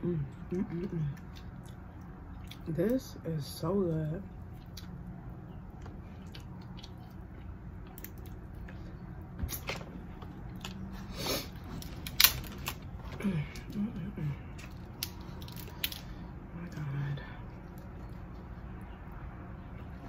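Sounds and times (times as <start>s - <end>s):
wet chewing and mouth smacks: 0.7s - 3.0s, 4.3s - 12.8s
crab shell cracking: 11.9s - 12.8s, 14.6s - 16.2s.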